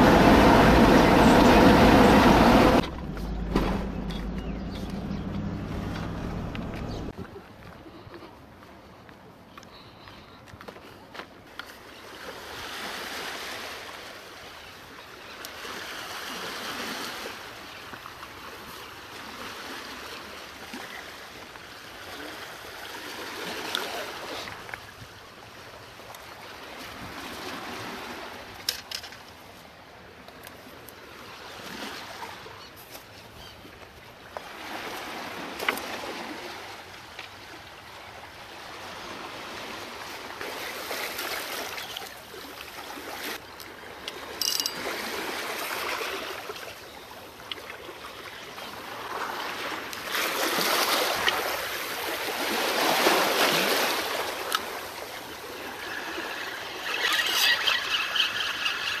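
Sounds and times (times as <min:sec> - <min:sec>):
small waves washing against rocks: 0:34.4 - 0:59.0.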